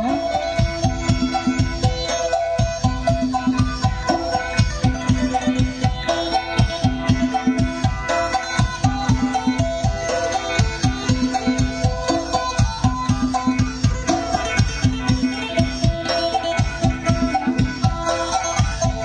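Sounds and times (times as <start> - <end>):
repeating drum beat: 0.0 - 19.0.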